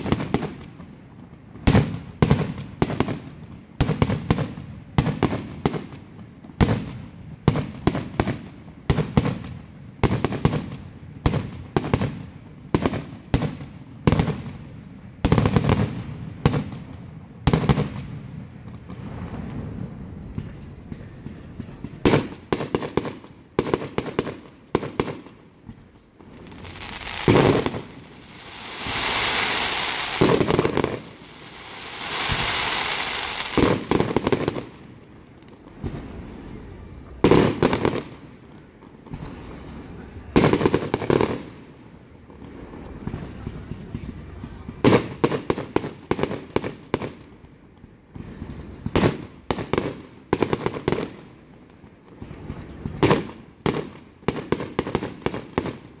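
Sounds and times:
fireworks bursting: 0.0s - 56.0s
fireworks hissing: 26.2s - 34.8s.

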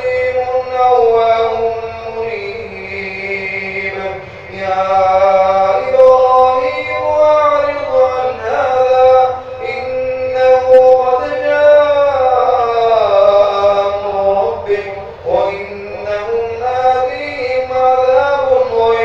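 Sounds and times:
man chanting melodically: 0.0s - 19.0s.

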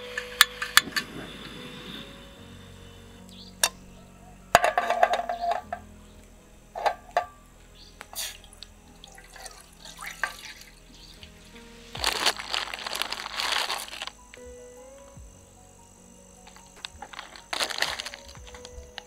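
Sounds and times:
faint background music: 0.0s - 19.0s
water pouring into pot: 8.2s - 10.8s
metal pot clinks: 9.4s - 10.6s
plastic packet crinkling: 12.0s - 14.2s, 16.5s - 19.0s.

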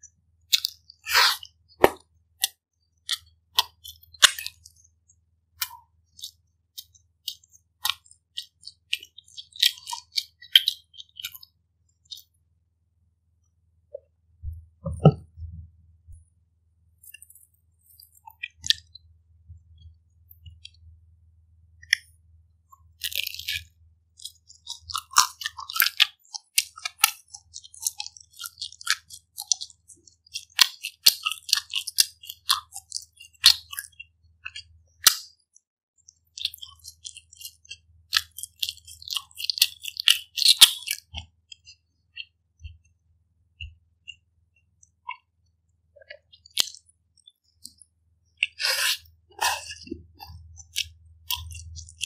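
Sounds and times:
crunchy chewing: 0.5s - 1.6s, 2.4s - 4.9s, 5.6s - 12.3s, 22.8s - 35.4s, 36.1s - 42.9s, 46.0s - 52.0s
wet mouth clicks: 0.6s - 4.9s, 5.6s - 11.5s, 22.8s - 35.3s, 36.2s - 42.9s, 46.0s - 52.0s.

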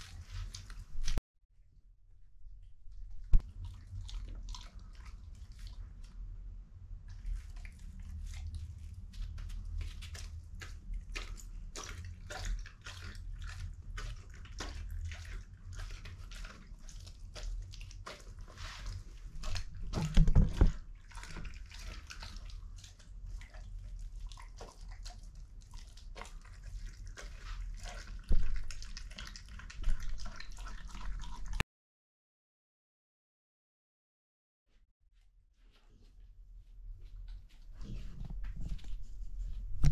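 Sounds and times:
dog chewing and licking: 3.0s - 6.2s, 7.1s - 31.6s.

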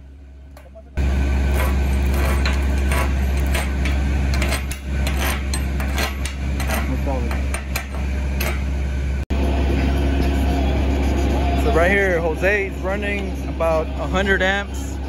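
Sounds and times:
low hum: 0.0s - 15.0s
welding arc crackling: 1.0s - 6.6s.

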